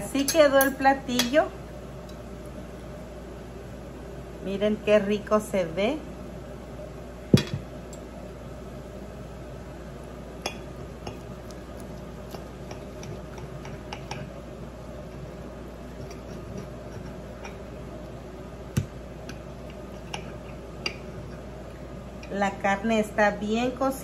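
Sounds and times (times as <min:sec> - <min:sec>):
knife and fork scraping a plate: 0:15.9 - 0:17.6.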